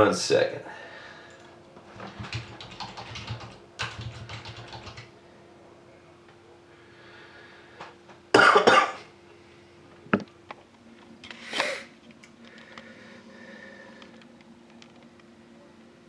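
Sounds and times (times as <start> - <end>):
faint steady hum: 0.0 - 16.0
person coughing: 8.4 - 9.1.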